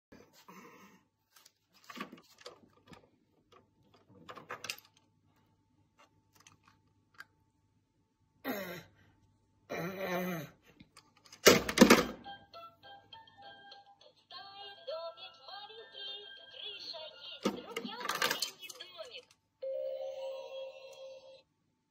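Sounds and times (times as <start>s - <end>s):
plastic toys clicking and rattling: 2.2s - 5.1s, 6.3s - 7.3s, 17.4s - 19.4s.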